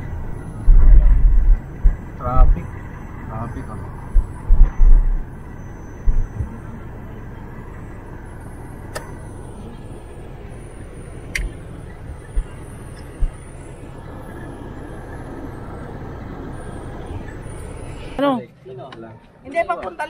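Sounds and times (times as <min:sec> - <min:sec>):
short low thumps: 0:00.0 - 0:02.7, 0:04.0 - 0:05.3, 0:06.0 - 0:06.6
road and engine noise in cabin: 0:00.0 - 0:20.0
sharp clicks: 0:11.3 - 0:11.6.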